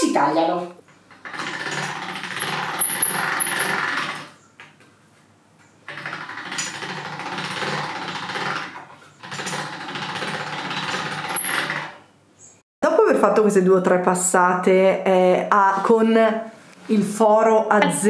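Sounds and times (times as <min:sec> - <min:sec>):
pasta machine rattling: 0:01.0 - 0:04.4, 0:05.9 - 0:12.0.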